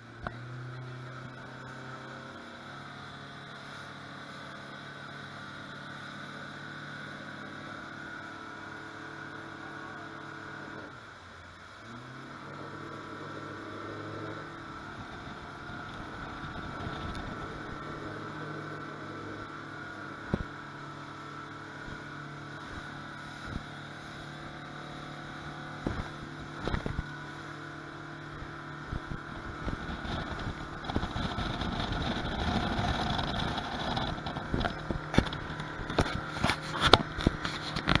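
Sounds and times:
outboard motor running: 0.0 - 38.0
hull slapping water: 11.6 - 38.0.

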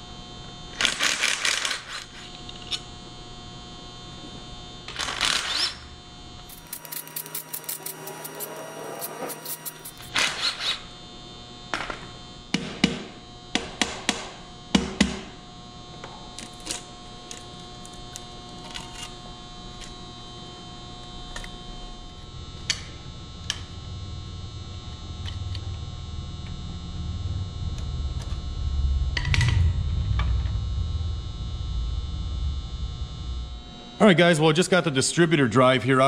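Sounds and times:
steady electrical hum: 0.0 - 36.0
low rumble: 25.9 - 34.6.

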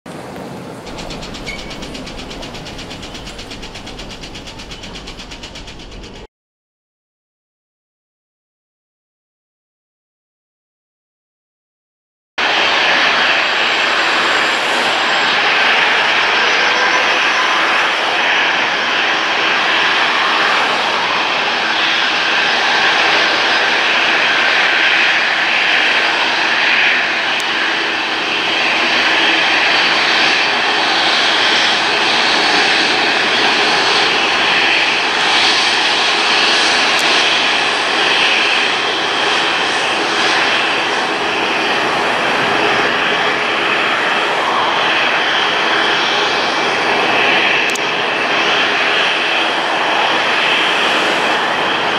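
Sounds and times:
faint engine whine: 0.2 - 6.3
jet engines running: 0.2 - 6.3, 12.4 - 51.9.

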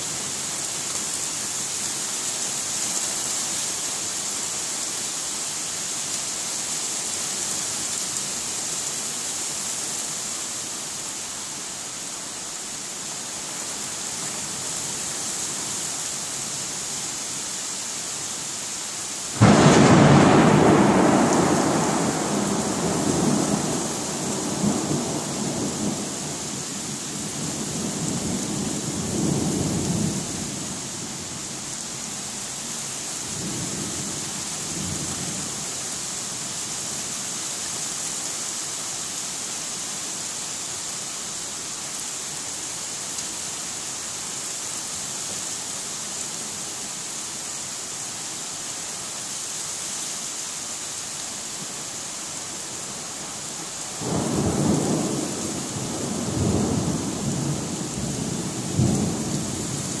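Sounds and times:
heavy rain: 0.0 - 60.0
rolling thunder: 19.4 - 26.2, 54.0 - 59.8.

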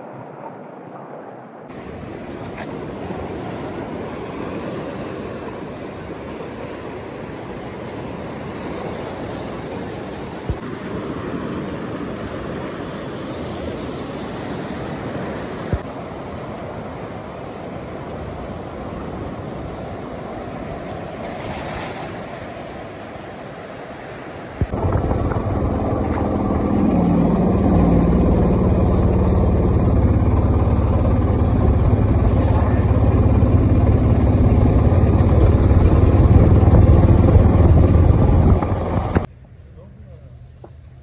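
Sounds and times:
surf on rocky shore: 0.0 - 39.3
wind: 0.0 - 41.0
vehicle engine running: 24.7 - 39.3.

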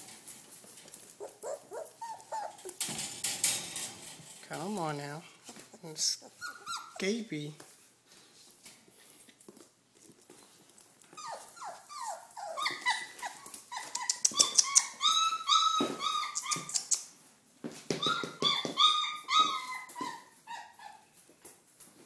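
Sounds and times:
puppies whining and yelping: 1.2 - 2.8, 5.7 - 7.1, 11.1 - 17.0, 17.9 - 21.2.

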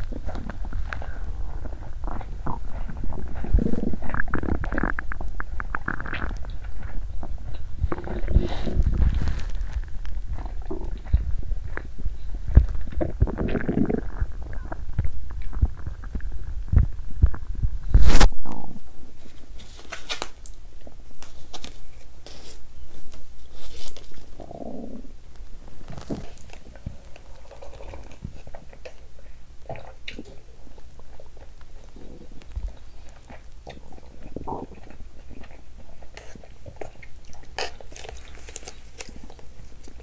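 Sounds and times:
stomach growling and gurgling: 0.0 - 19.3, 24.2 - 40.0.

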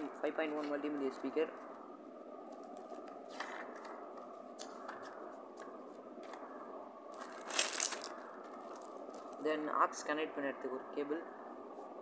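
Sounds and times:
steady background noise: 0.0 - 12.0
paper booklet rustling: 2.5 - 6.4
paper crinkle: 7.2 - 9.2.

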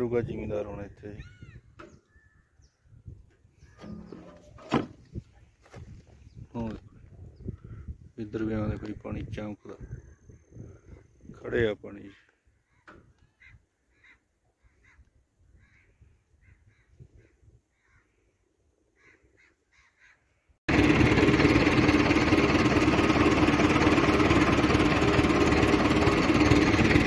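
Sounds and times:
faint bird calls: 1.1 - 4.4, 12.0 - 20.5.

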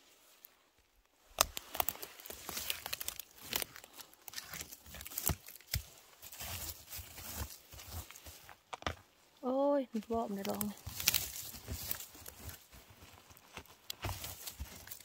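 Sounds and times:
crackling of dry forest litter: 0.0 - 15.0
twigs snapping: 1.2 - 9.0, 10.0 - 12.7, 13.4 - 15.0.

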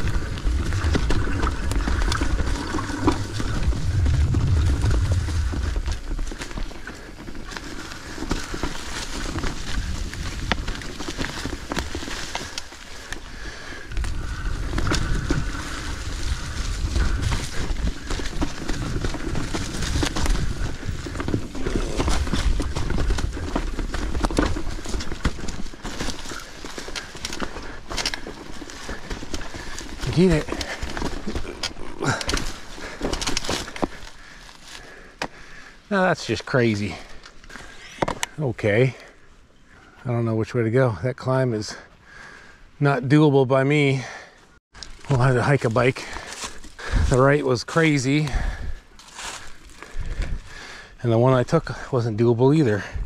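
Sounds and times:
low rumble: 0.0 - 6.6
tyres crunching through dry leaves: 0.0 - 37.9, 44.7 - 50.6
bike rattling over bumps: 0.0 - 39.9, 44.8 - 53.0.

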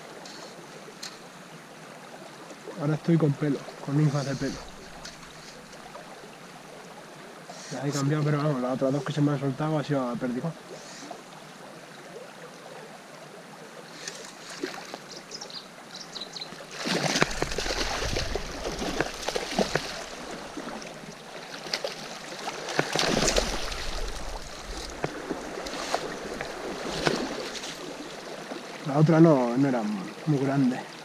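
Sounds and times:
stream running: 0.0 - 31.0
fish splashing in water: 16.6 - 28.6.

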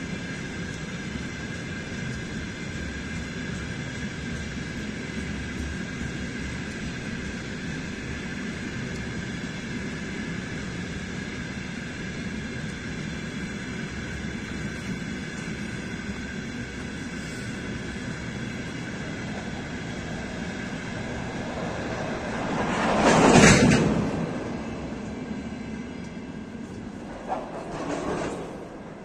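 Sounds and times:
thin steady whine: 0.0 - 23.0
train wheels rumbling on rails: 0.0 - 29.0
rushing sound: 18.8 - 25.3.

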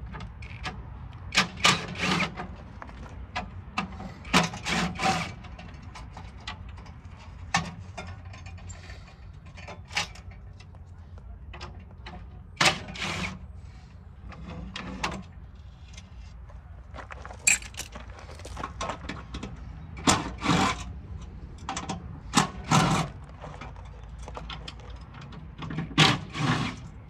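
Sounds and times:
metal parts clinking: 17.2 - 18.6.

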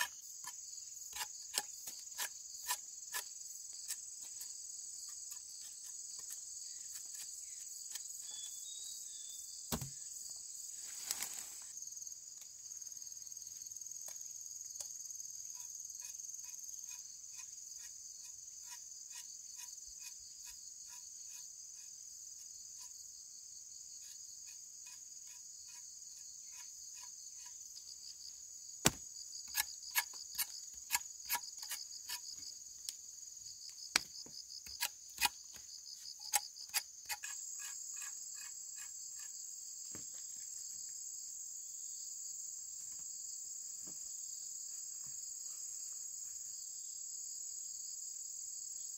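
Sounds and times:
sharp knocks: 9.7 - 10.0.

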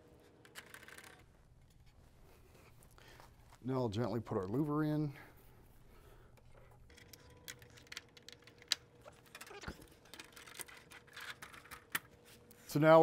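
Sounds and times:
plastic parts clicking: 6.9 - 12.0.

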